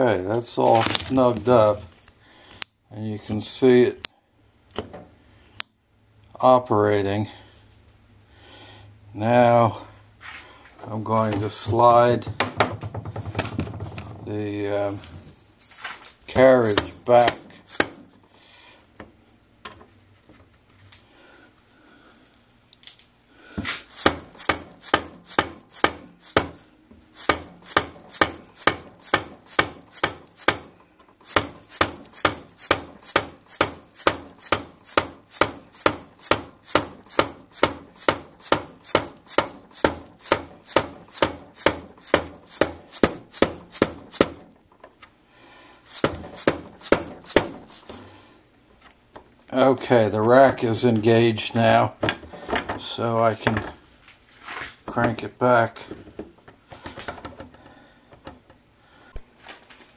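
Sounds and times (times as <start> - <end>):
lathe carriage metallic clicking: 16.4 - 18.1, 23.9 - 44.8, 45.8 - 48.0.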